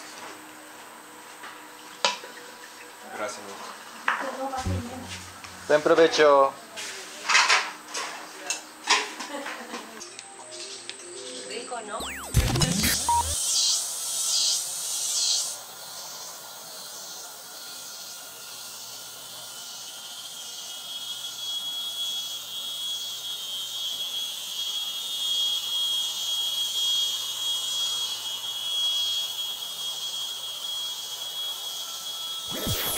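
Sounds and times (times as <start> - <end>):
short high sounds: 4.6 - 6.2, 12.0 - 13.4, 32.5 - 32.9.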